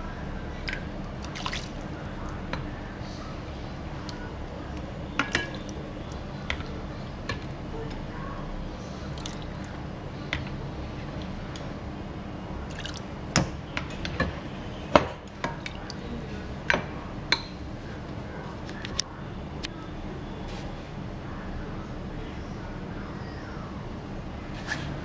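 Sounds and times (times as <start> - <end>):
liquid pouring and dripping: 0.6 - 2.6, 9.1 - 9.8, 12.7 - 13.2.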